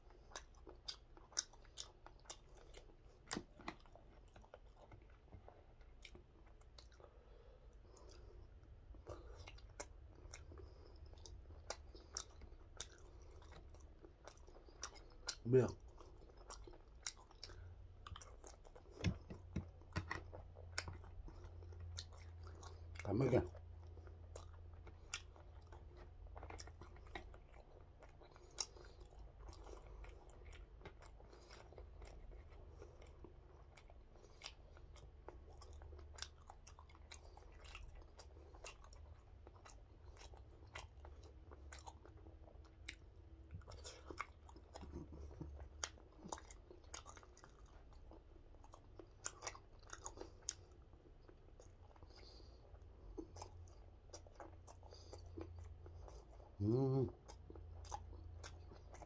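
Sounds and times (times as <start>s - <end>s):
faint chewing: 0.0s - 59.0s.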